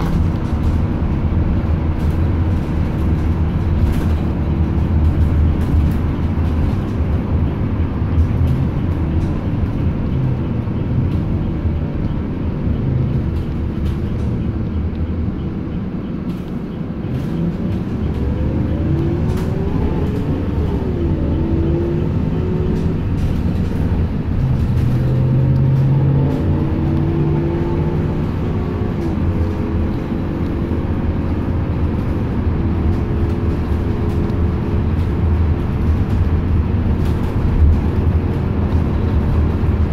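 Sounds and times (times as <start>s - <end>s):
bus engine and road rumble: 0.0s - 39.9s.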